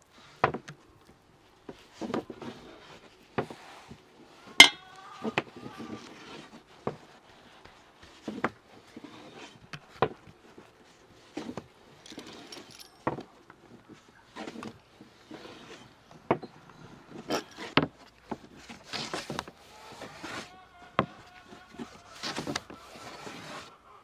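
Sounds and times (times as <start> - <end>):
metal spoon scraping on wooden board: 14.4 - 16.0, 17.0 - 17.8.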